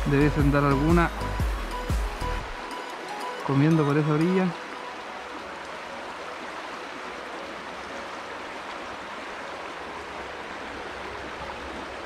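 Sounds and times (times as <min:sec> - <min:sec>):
river water rushing: 0:00.0 - 0:12.0.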